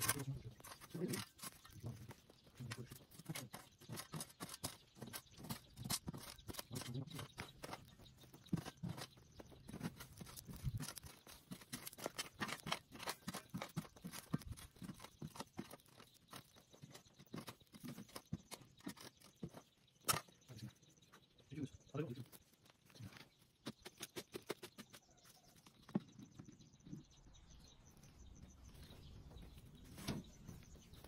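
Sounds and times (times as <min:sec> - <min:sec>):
shovel scraping stony soil: 0:00.0 - 0:20.4.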